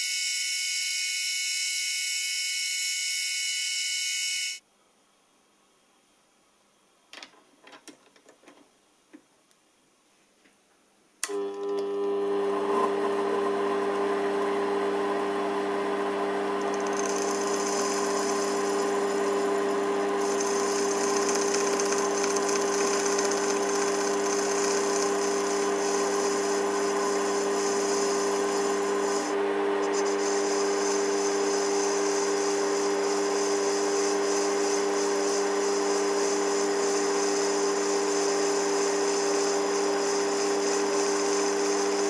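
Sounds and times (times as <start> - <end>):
lathe motor humming: 11.3 - 42.0
lathe tool cutting brass: 16.4 - 42.0.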